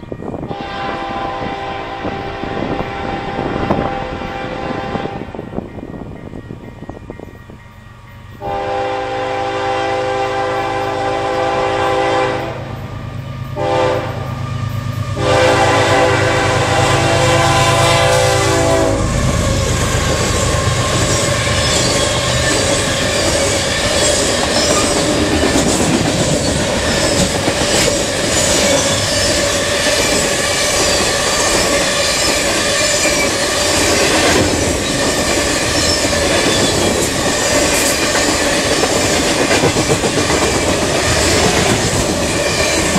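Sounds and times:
diesel locomotive rumble: 0:00.0 - 0:42.9
locomotive air horn blasts: 0:00.5 - 0:05.4, 0:08.4 - 0:12.8, 0:13.6 - 0:14.4, 0:15.2 - 0:19.2
train wheels clicking over rail joints: 0:19.2 - 0:42.9.

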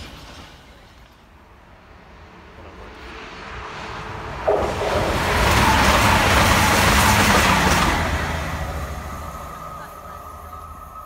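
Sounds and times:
train wheels on rail: 0:00.0 - 0:11.0
rushing air: 0:02.0 - 0:09.6.

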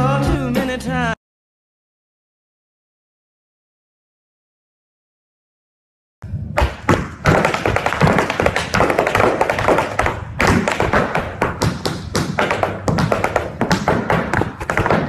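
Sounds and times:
tap shoes on hard floor: 0:06.6 - 0:15.0.

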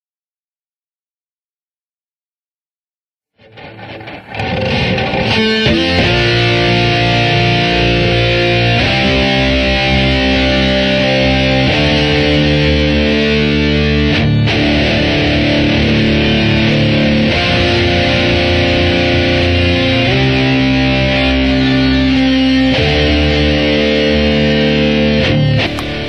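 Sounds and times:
distorted electric guitar chords: 0:03.4 - 0:26.0.

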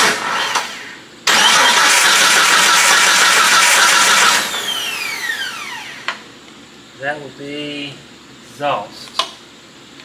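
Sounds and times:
starter whine winding down: 0:00.0 - 0:06.2
engine cranking on starter: 0:01.3 - 0:04.5.

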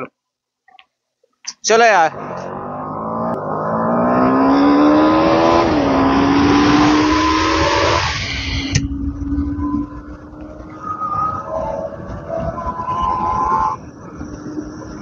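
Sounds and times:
motorcycle engine accelerating: 0:02.0 - 0:15.0
wind rushing over microphone: 0:03.4 - 0:15.0.

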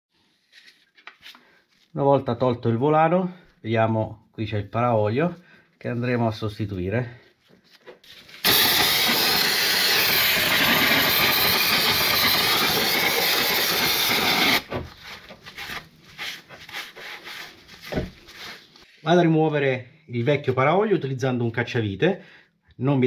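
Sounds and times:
aerosol spray can hissing: 0:08.4 - 0:14.7
rag rubbing and wiping: 0:10.7 - 0:18.9.

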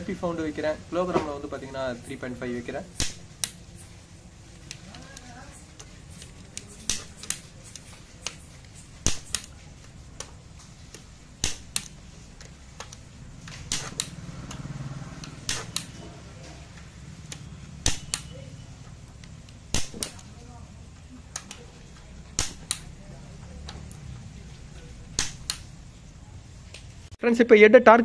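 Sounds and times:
torque wrench clicking: 0:04.6 - 0:09.6, 0:10.2 - 0:16.0, 0:19.1 - 0:20.3, 0:22.4 - 0:23.0.

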